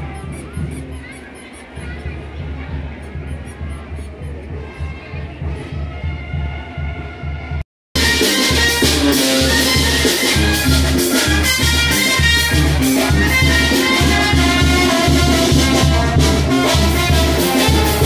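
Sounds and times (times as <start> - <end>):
latin dance music with brass: 5.5 - 18.0.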